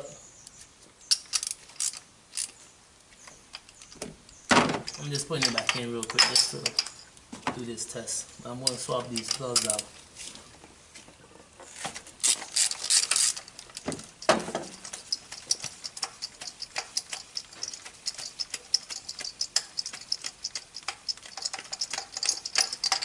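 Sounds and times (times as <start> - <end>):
ratchet wrench clicking: 1.1 - 2.5, 12.2 - 23.0
metal clinks: 4.9 - 7.1, 8.6 - 9.9, 12.2 - 23.0.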